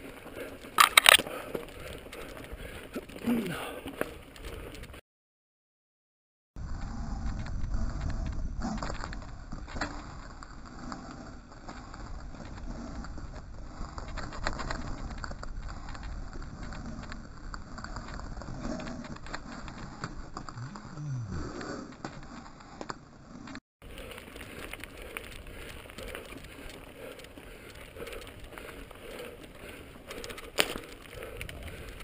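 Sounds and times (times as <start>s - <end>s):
bike rattling: 0.0s - 5.0s, 6.6s - 32.0s
wind rumble on microphone: 6.6s - 22.9s, 23.8s - 32.0s
tyres rolling over loose stones: 7.3s - 32.0s.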